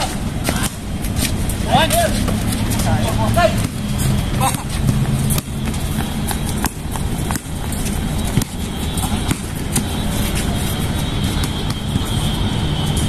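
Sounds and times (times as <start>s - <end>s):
footsteps on hard court: 0.0s - 13.0s
basketball bouncing: 3.6s - 10.1s, 11.2s - 12.2s.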